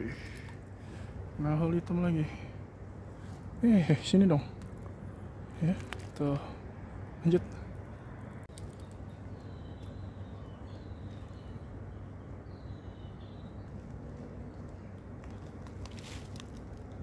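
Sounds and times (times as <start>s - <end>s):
bird chirping: 7.3s - 14.9s.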